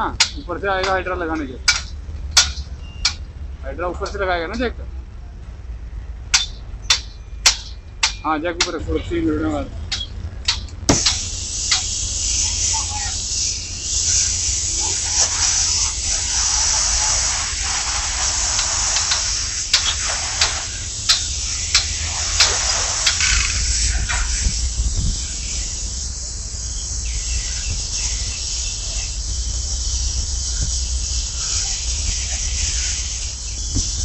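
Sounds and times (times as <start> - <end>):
gas torch flame hissing: 10.9 - 34.0.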